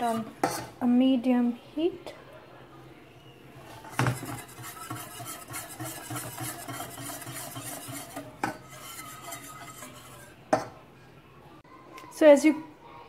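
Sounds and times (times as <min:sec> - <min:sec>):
whisk scraping a saucepan: 0:00.0 - 0:00.8, 0:03.6 - 0:10.8
whisk tapping a pan: 0:03.8 - 0:10.8.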